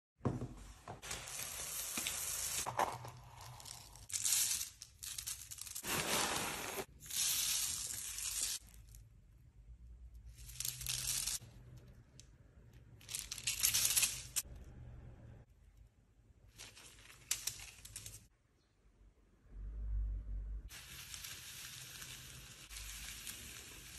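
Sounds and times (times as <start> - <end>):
plastic bag crinkling: 1.2 - 6.9
foam beads pouring into tub: 3.6 - 8.6, 20.7 - 23.9.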